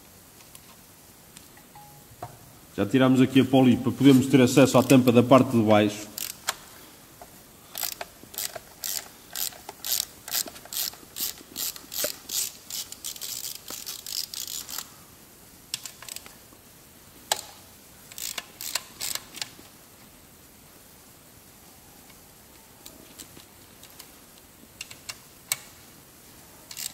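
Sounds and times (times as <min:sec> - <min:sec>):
hand ratchet clicking: 0:06.1 - 0:06.6, 0:07.7 - 0:14.9, 0:18.1 - 0:19.5, 0:26.7 - 0:26.9.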